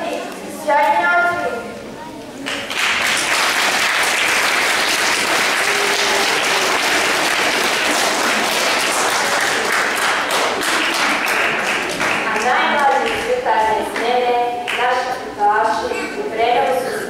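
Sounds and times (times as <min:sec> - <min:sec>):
audience applauding: 0:02.4 - 0:13.2.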